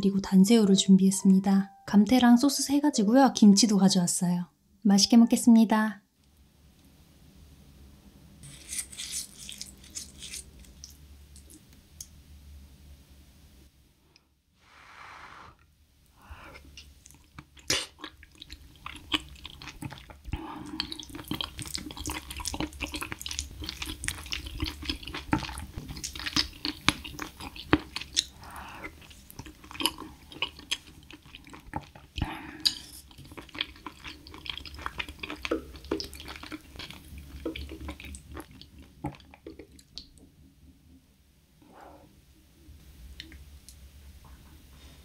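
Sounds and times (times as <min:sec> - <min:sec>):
wet chewing sounds: 0:17.0 - 0:40.2.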